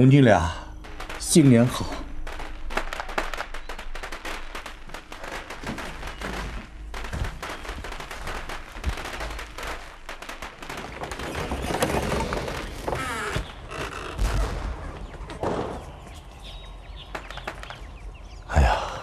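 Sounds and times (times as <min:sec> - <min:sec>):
firecrackers crackling bangs: 0:00.7 - 0:15.9.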